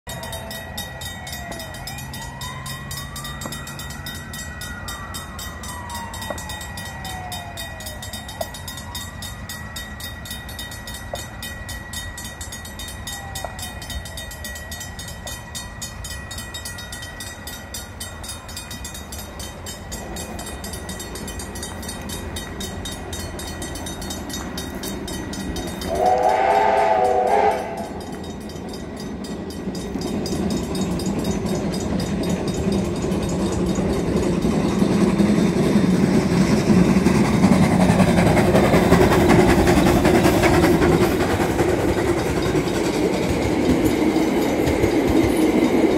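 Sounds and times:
steady high tone: 0.1s - 45.9s
steam locomotive whistle: 25.7s - 28.4s.

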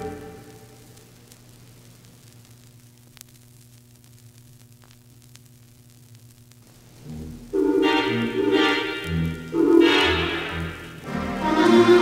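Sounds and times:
low hum: 0.0s - 1.3s, 5.5s - 12.0s
vinyl record clicks: 0.0s - 7.0s
vinyl record surface hiss: 0.0s - 12.0s.

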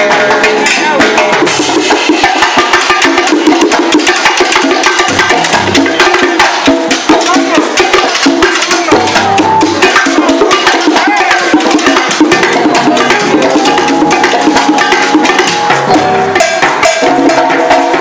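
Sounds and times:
timbales and congas beating: 0.0s - 18.0s
latin orchestra playing: 8.6s - 18.0s.

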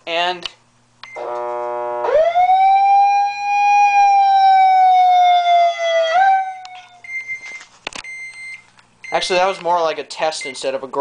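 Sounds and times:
siren wailing: 1.2s - 7.0s.

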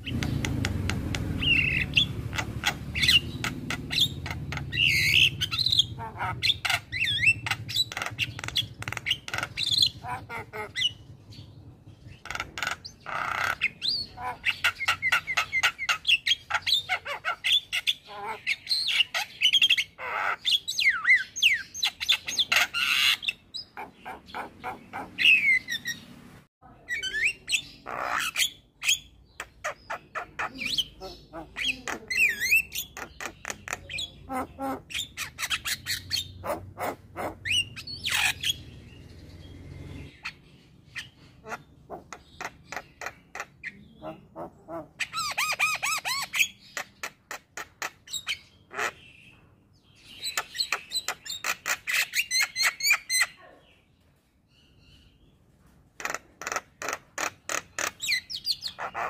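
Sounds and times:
myna chattering and whistling: 26.8s - 39.1s.

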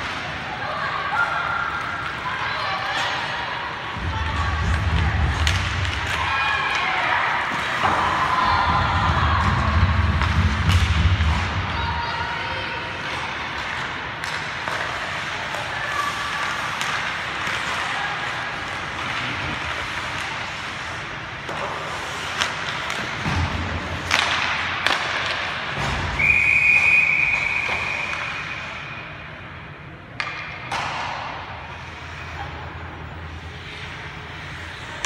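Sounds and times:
sticks and puck clacking: 1.6s - 11.8s, 12.8s - 26.3s, 30.1s - 32.6s
skates scraping on ice: 13.1s - 26.1s.

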